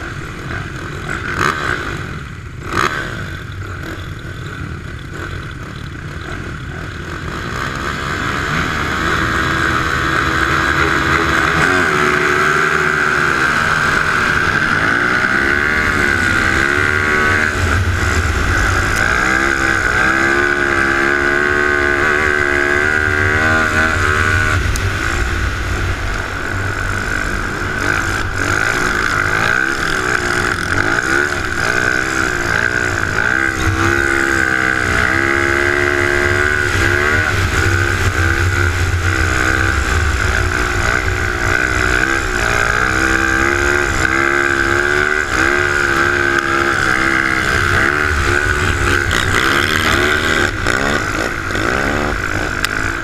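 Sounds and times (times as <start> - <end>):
quad bike engine revving: 0.0 - 53.0.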